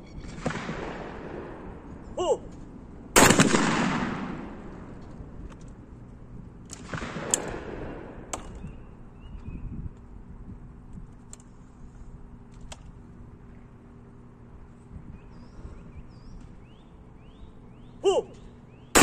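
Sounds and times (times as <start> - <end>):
shotgun shot: 0.3 - 1.8, 3.2 - 4.7, 6.8 - 8.7
bird chirps: 8.4 - 10.0, 14.7 - 19.0.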